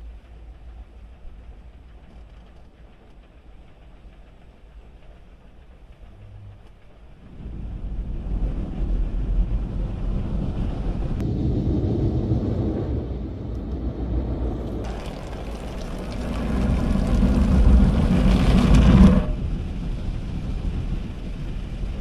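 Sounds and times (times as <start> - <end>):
car wash gantry hum: 5.4 - 22.0
water spray hitting car: 14.8 - 19.8.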